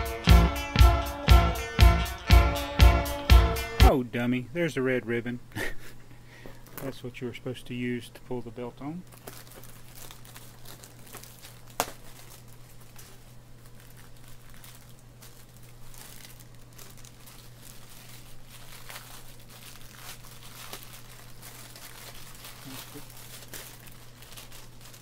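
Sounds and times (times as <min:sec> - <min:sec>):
packing material crinkling: 0:09.0 - 0:25.0.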